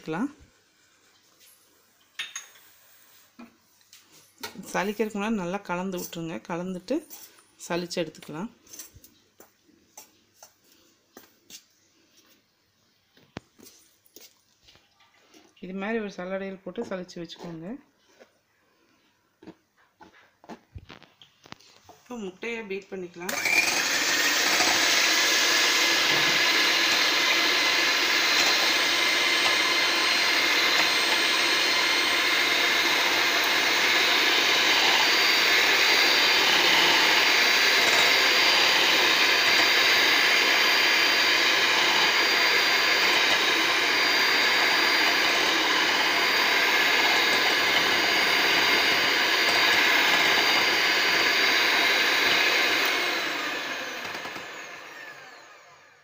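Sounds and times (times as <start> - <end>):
electric hand mixer whisking: 23.2 - 56.0.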